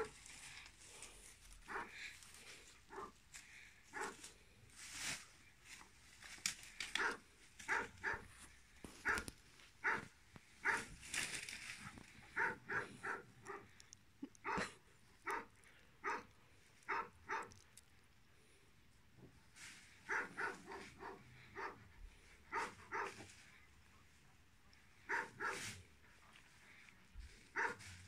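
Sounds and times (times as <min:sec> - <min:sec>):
dog barking: 0:01.7 - 0:02.0, 0:03.9 - 0:04.2, 0:07.0 - 0:08.3, 0:09.0 - 0:10.9, 0:12.4 - 0:13.8, 0:14.4 - 0:16.3, 0:16.9 - 0:17.6, 0:20.1 - 0:21.8, 0:22.5 - 0:23.3, 0:25.1 - 0:25.7, 0:27.5 - 0:27.9.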